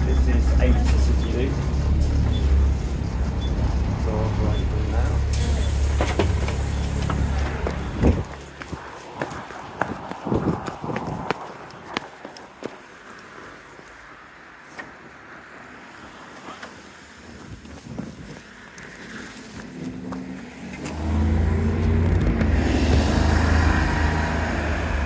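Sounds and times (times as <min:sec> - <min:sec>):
bus engine running: 0:00.0 - 0:10.6, 0:19.5 - 0:25.0.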